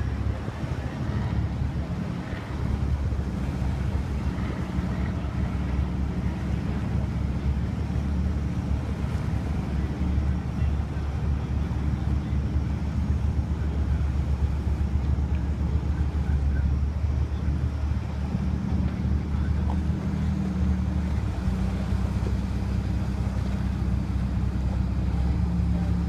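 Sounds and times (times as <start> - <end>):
boat engines rumbling: 0.0 - 26.0.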